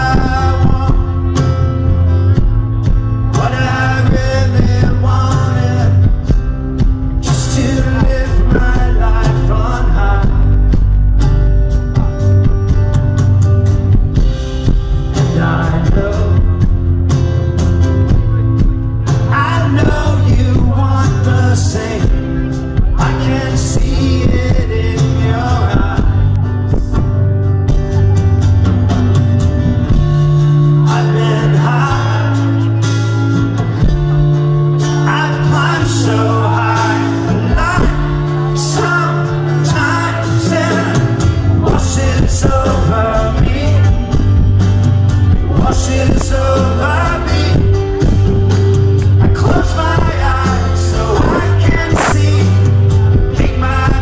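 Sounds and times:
man singing: 0:00.0 - 0:12.2, 0:14.1 - 0:17.1, 0:18.1 - 0:27.2, 0:29.8 - 0:54.0
held bass notes: 0:00.0 - 0:54.0
live rock band playing: 0:00.0 - 0:54.0.

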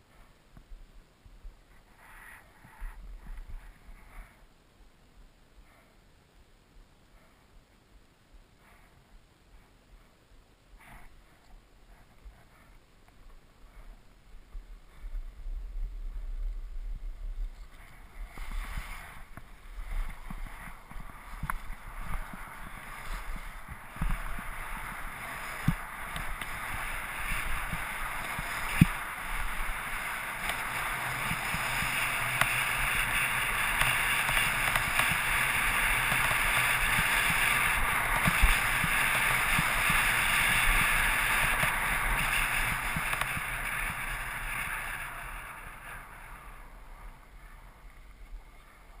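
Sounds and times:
wind rumbling on microphone: 0:00.0 - 0:04.6, 0:10.8 - 0:49.0
skis sliding over snow: 0:10.8 - 0:49.0.

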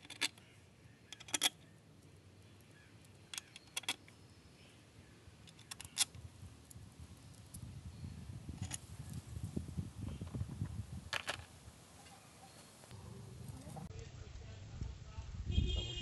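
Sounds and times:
steel bolts clicking and clinking: 0:00.0 - 0:00.4, 0:01.1 - 0:01.6, 0:03.3 - 0:04.1, 0:05.4 - 0:06.2
low rumbling noise: 0:12.9 - 0:15.5.

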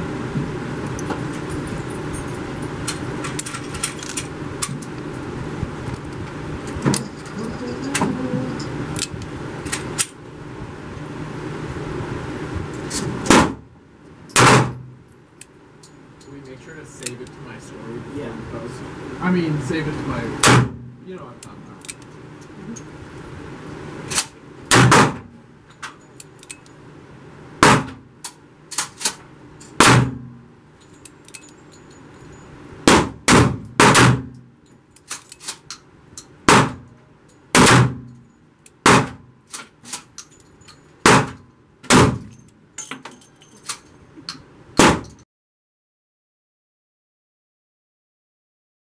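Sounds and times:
loud gunshots echoing: 0:13.3 - 0:13.6, 0:14.4 - 0:14.8, 0:20.4 - 0:20.8, 0:24.7 - 0:25.3, 0:27.6 - 0:28.0, 0:29.8 - 0:30.2, 0:32.9 - 0:34.3, 0:36.5 - 0:36.9, 0:37.6 - 0:38.0, 0:38.8 - 0:39.2, 0:41.1 - 0:42.3.

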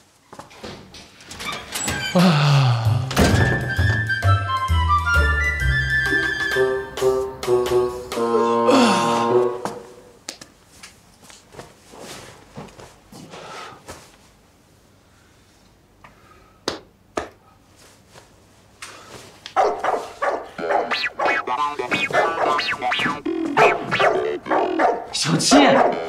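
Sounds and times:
dog barking: 0:19.6 - 0:21.4, 0:23.6 - 0:26.0.

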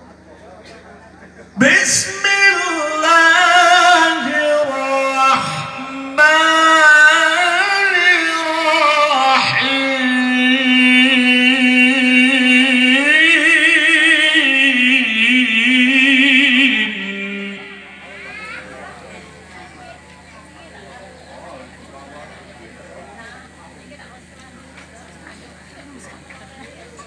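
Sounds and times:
person chanting melodic recitation: 0:01.6 - 0:18.6.

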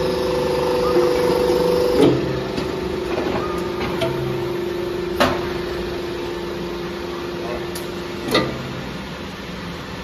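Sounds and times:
motor and pump humming: 0:00.0 - 0:10.0.

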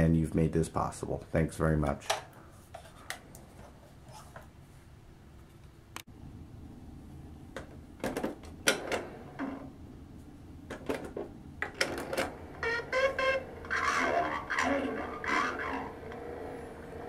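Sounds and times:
slowed recorded toy voice: 0:12.9 - 0:16.2.

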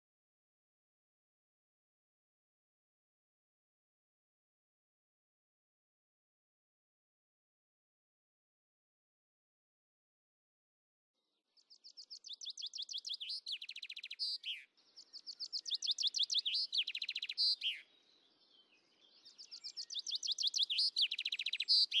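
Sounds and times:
songbird singing: 0:11.5 - 0:22.0.

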